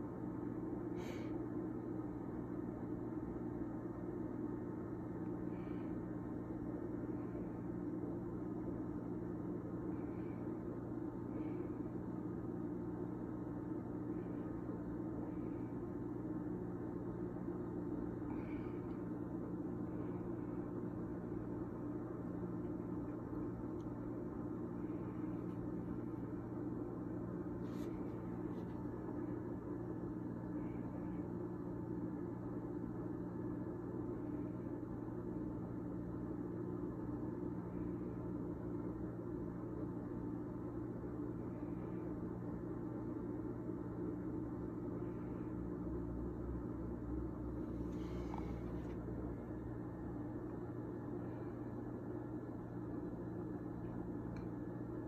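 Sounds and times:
low machine hum: 0.0 - 55.0.

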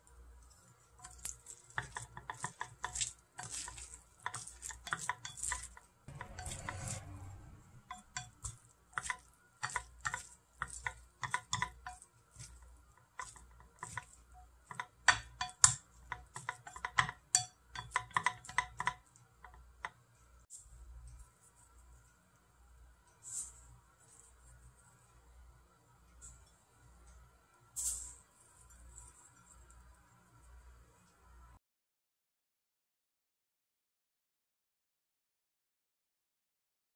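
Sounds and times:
chopsticks clicking on glass bowl: 1.0 - 7.1, 7.9 - 20.0
wet salad swishing: 1.0 - 14.2.

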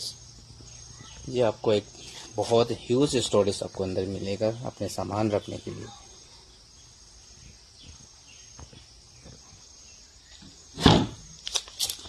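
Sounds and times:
wooden lid thumping shut: 10.8 - 11.2.

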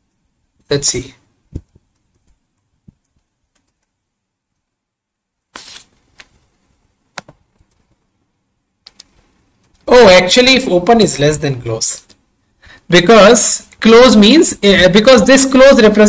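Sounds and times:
mouse and keyboard clicks: 1.6 - 4.0, 8.8 - 9.8.

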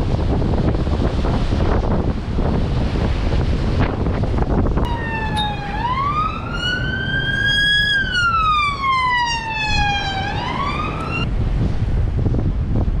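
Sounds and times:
wind rumble on microphone: 0.0 - 13.0
emergency siren wailing: 4.9 - 11.3.

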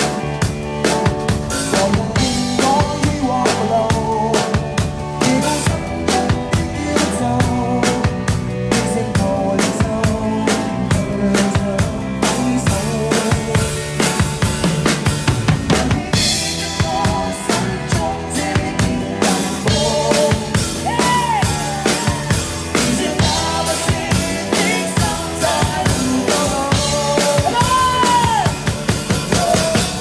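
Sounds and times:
drum kit hits: 0.0 - 30.0
live pop band playing: 0.0 - 30.0
woman singing: 16.1 - 28.6.

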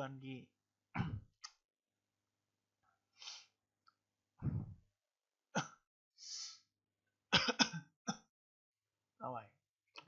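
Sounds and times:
person sniffing sharply: 3.2 - 3.6, 6.2 - 6.7.

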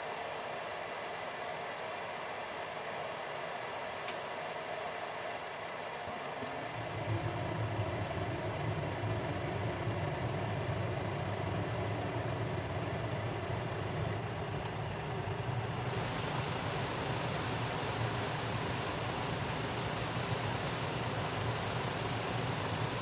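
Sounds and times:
furnace draft fan running: 6.1 - 23.0
rumble of burning gas: 6.4 - 23.0.

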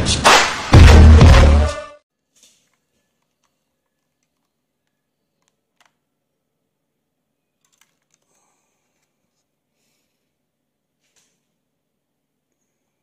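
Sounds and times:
faint plastic clicks: 2.4 - 6.1.

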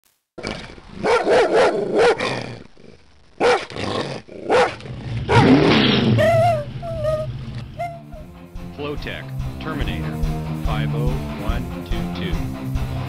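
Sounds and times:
large dog barking: 1.0 - 2.5, 3.4 - 3.8, 4.4 - 5.7.

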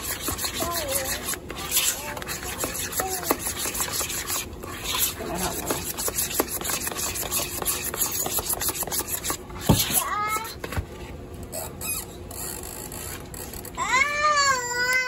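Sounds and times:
spoon scraping batter in bowl: 0.0 - 10.6
small child whining: 13.8 - 15.0.

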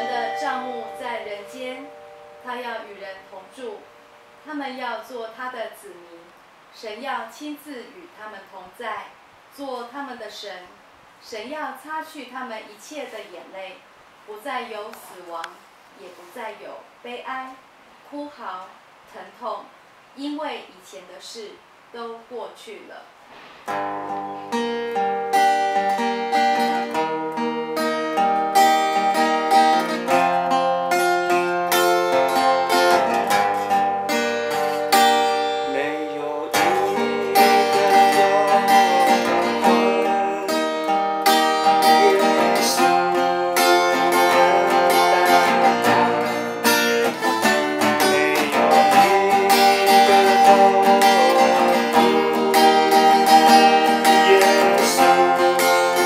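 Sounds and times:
acoustic guitar: 0.0 - 5.9, 23.3 - 56.0
man singing: 35.6 - 56.0.

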